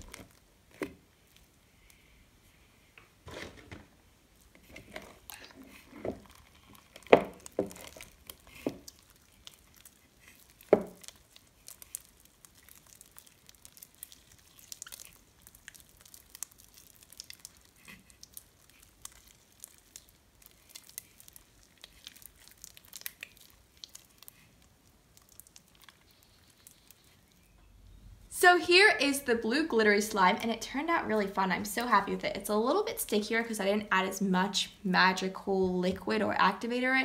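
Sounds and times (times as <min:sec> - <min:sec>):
slime popping: 0:04.7 - 0:27.1
slime clicks and crackles: 0:04.8 - 0:27.2.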